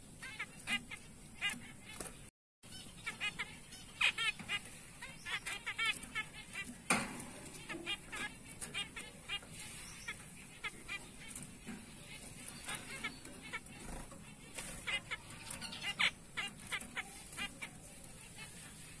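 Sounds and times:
finches calling: 0.2s - 19.0s.

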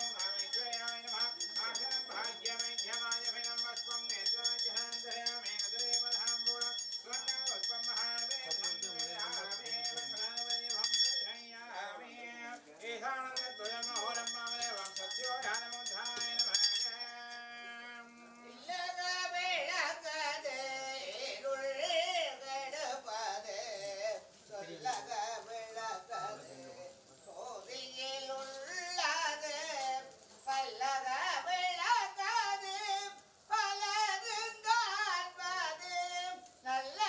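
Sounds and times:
hand bell ringing rapidly: 0.0s - 11.6s, 13.3s - 17.8s
person singing: 0.0s - 37.0s.

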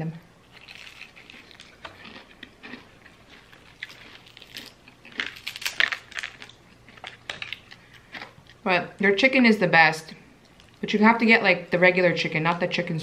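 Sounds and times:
chewing crispy chicken: 0.4s - 8.6s.

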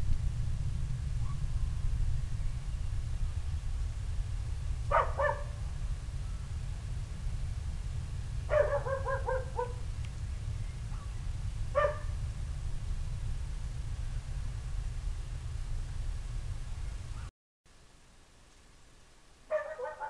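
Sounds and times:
steady low rumble: 0.0s - 20.0s
animal yelping barks: 4.9s - 5.6s, 8.5s - 9.8s, 11.8s - 12.1s, 19.5s - 20.0s.

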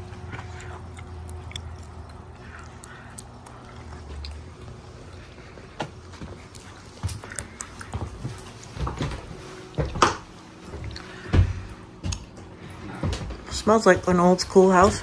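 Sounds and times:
footsteps knocking and thumping: 5.7s - 15.0s.

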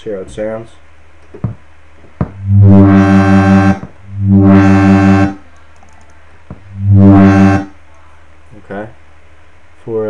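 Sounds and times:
wobbling synth bass notes: 2.2s - 5.4s, 6.7s - 7.7s.

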